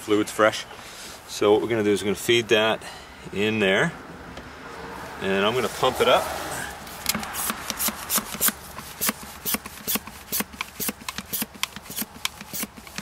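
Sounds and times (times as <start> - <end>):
hand pump plunger strokes: 6.9 - 13.0.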